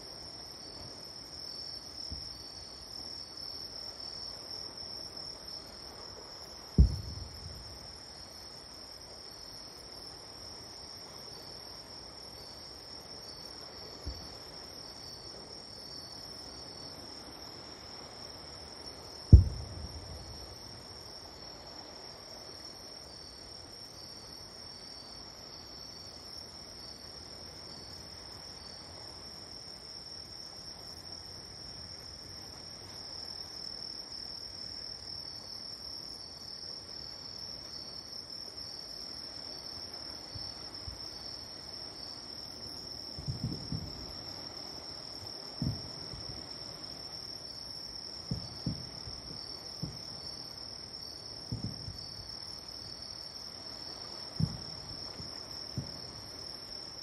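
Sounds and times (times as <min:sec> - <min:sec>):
distant fireworks booming: 0:06.8 - 0:07.8, 0:19.3 - 0:20.7, 0:43.2 - 0:44.1, 0:45.6 - 0:46.4, 0:48.2 - 0:50.2, 0:51.5 - 0:52.1, 0:54.4 - 0:56.2.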